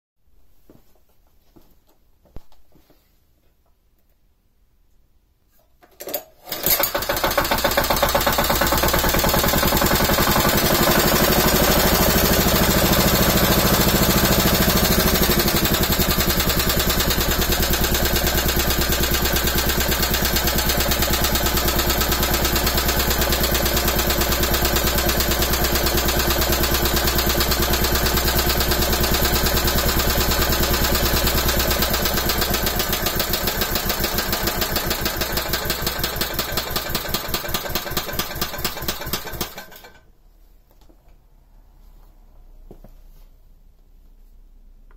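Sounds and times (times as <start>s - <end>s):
recoil starter pull: 6.0s - 40.0s
small engine running: 6.8s - 39.8s.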